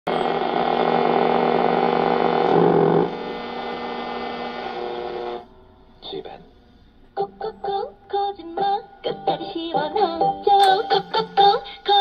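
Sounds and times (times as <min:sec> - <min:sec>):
radio speaker hiss: 0:00.1 - 0:06.9
radio hum with held tones: 0:00.1 - 0:07.8.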